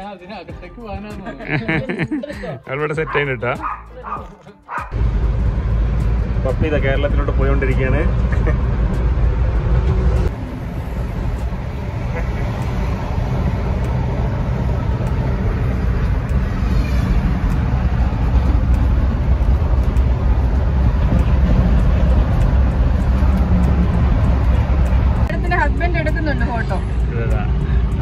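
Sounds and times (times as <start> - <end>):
road and engine rumble inside car: 4.9 - 28.0.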